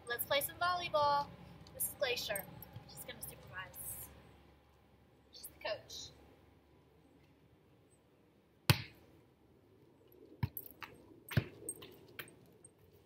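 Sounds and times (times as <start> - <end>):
volleyball being struck: 8.7 - 9.0.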